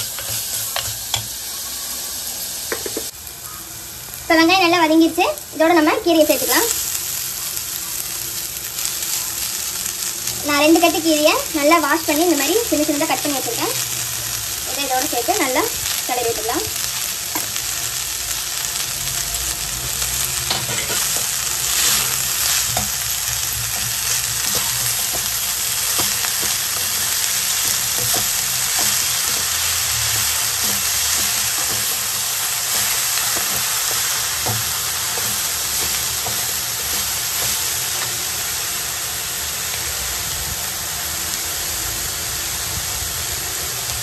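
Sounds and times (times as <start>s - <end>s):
greens sizzling in hot oil: 0.0s - 44.0s
metal spatula scraping and clinking: 20.5s - 23.0s, 23.7s - 29.6s, 30.2s - 32.1s.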